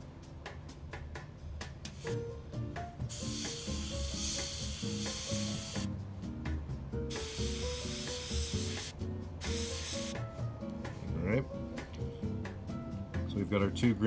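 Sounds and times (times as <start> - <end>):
background music: 0.0 - 14.0
airbrush spraying hiss: 1.9 - 2.2, 3.0 - 5.9, 7.1 - 10.2.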